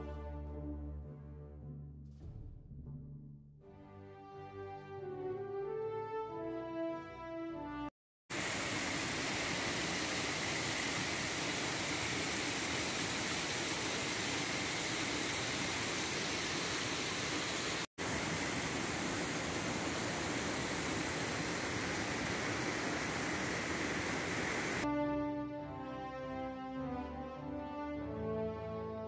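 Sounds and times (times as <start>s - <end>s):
creek rushing over rocks: 8.3s - 24.8s.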